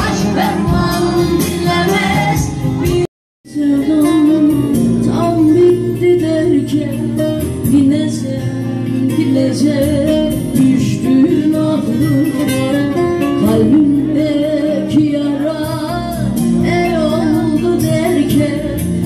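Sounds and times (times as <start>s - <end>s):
band with guitar: 0.0s - 19.0s
woman singing into a microphone: 0.0s - 19.0s.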